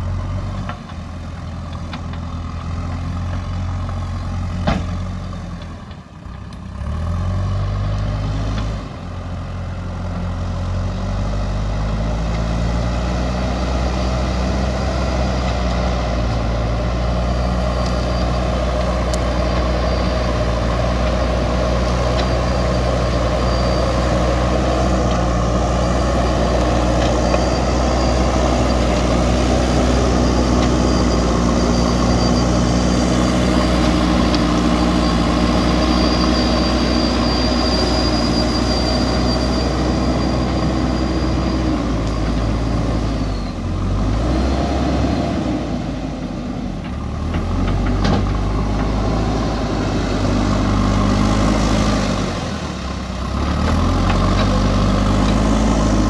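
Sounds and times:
diesel engine revving: 0.0 - 56.0.

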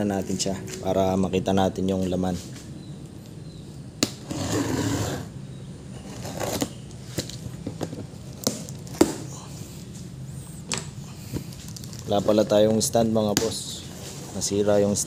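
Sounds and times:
cardboard box scraping rustles: 4.2 - 5.3, 6.0 - 7.2.

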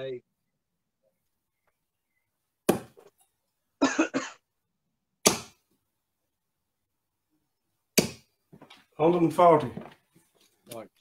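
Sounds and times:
darts striking a dartboard: 5.2 - 5.6.

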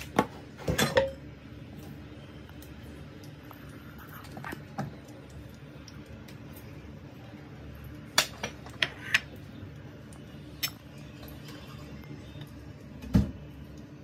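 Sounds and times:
steady low hum: 0.0 - 14.0
metal utensils clinking on cookware: 0.6 - 1.2.

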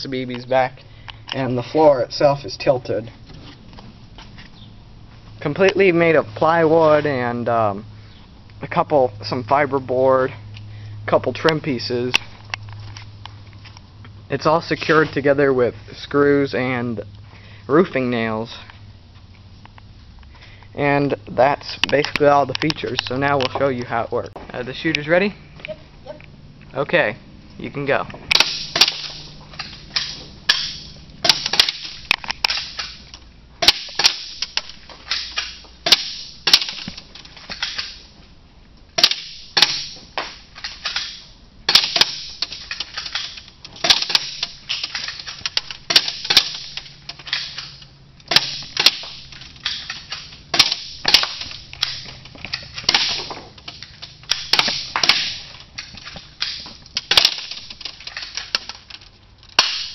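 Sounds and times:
airsoft gun shots: 28.3 - 29.3, 29.9 - 33.0, 33.6 - 34.5, 35.1 - 36.9, 39.0 - 40.0, 41.0 - 42.6, 43.8 - 45.1, 45.9 - 46.8, 48.3 - 49.9, 50.5 - 52.1, 52.8 - 53.3, 54.3 - 55.5, 59.6 - 59.9.

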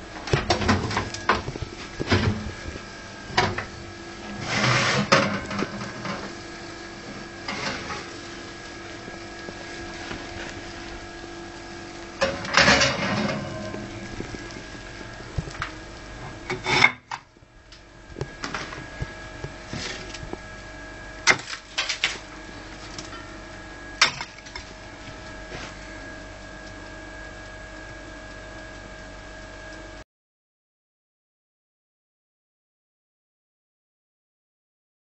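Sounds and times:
steady hum: 0.0 - 30.0.

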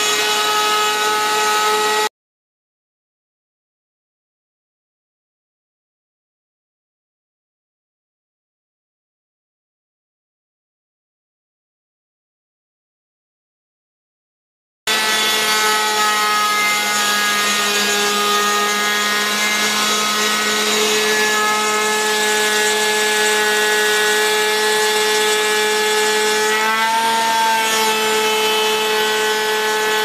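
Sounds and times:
end mill rasping wood: 0.0 - 2.1, 14.9 - 30.0
router spindle whine: 14.9 - 30.0.

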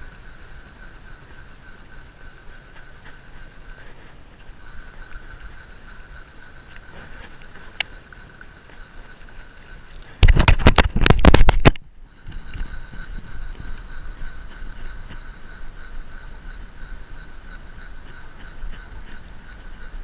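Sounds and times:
microphone handling noise: 10.1 - 15.2.

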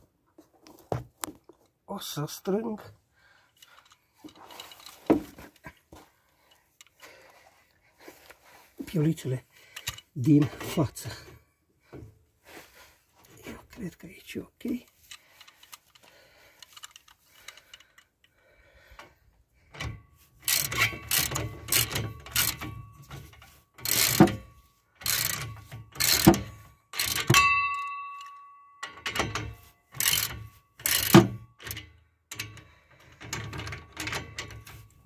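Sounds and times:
socket ratchet clicking: 20.4 - 22.8, 23.8 - 24.4, 25.0 - 27.5, 28.2 - 32.7
metal clink: 20.6 - 32.6.

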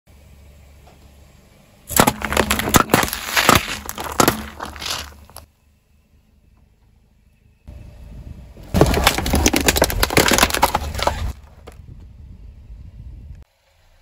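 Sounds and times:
objects crunching under car tyre: 1.9 - 5.5, 8.7 - 12.0.

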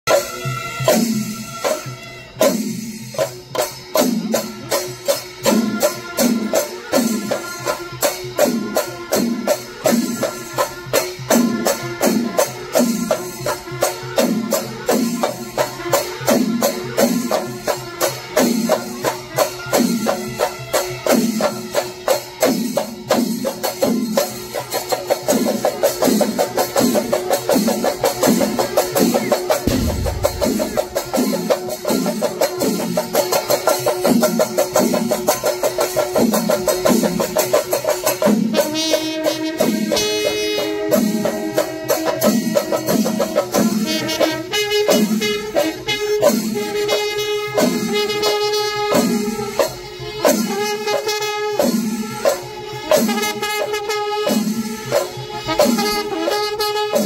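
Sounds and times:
cymbals clashing: 0.1 - 57.0
drum ensemble beating: 25.2 - 37.4.

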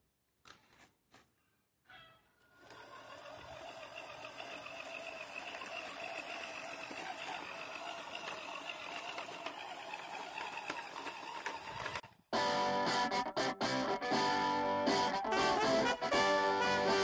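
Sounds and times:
small motor and gears whining: 2.5 - 12.1.

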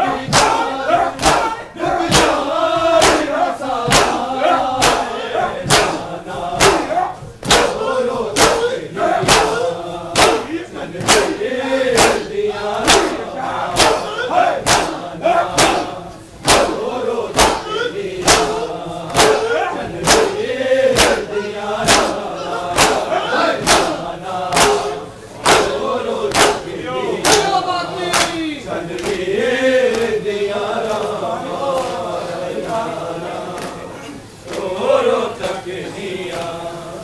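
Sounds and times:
crowd of men chanting: 0.0 - 37.0
chest slaps in unison: 1.2 - 13.2, 13.8 - 15.0, 15.6 - 20.4, 21.0 - 21.2, 21.8 - 22.2, 22.8 - 26.6, 27.2 - 27.5.

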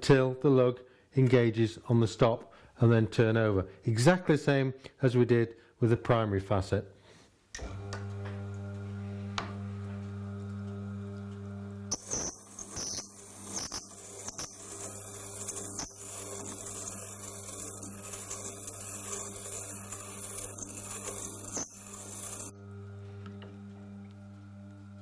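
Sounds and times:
grinder motor hum: 7.6 - 25.0
drill bit grinding on stone: 11.9 - 24.1.

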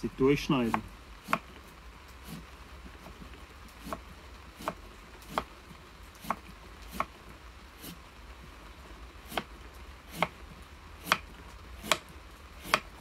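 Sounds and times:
knife slicing sweet potato: 0.7 - 1.5, 4.6 - 5.5, 12.6 - 12.9.

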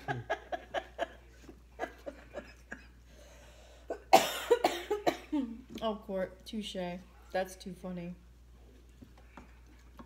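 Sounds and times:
woman laughing: 0.0 - 2.9
loud cough: 3.9 - 5.5.

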